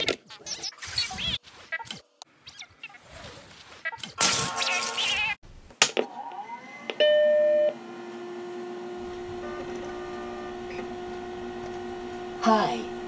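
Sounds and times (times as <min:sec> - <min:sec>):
computer humming: 0:06.2 - 0:13.0.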